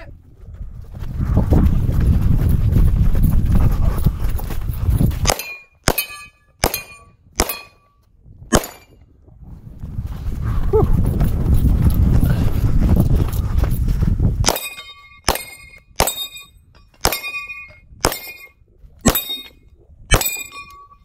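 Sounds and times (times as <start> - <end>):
wind rumbling on microphone: 0.0 - 5.5, 6.6 - 21.0
carbine gunshots: 5.3 - 7.7
steel targets ringing: 5.3 - 7.8, 14.5 - 21.0.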